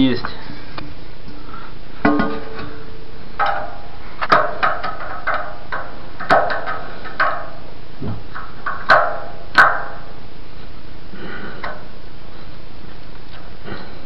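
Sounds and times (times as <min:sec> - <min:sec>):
steady air hiss: 0:05.3 - 0:14.0.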